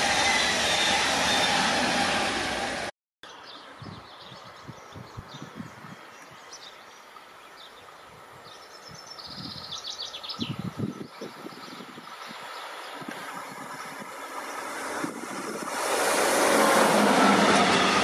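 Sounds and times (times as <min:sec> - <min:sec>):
passing train noise: 0:00.0 - 0:02.9, 0:06.8 - 0:18.0
birds chirping and trilling: 0:03.2 - 0:14.9
diesel locomotive low rumble: 0:07.1 - 0:18.0.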